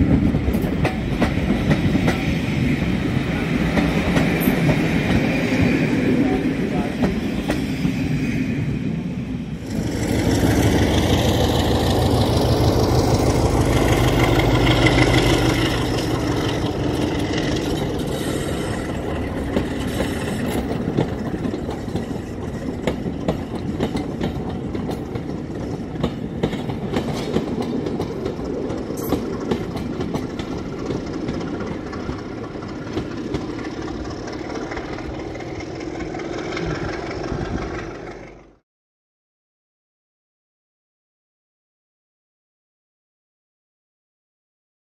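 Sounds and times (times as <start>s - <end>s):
train wheels clattering over rail joints: 0.0s - 5.8s, 9.7s - 38.5s
diesel locomotive engine under load: 0.0s - 38.6s.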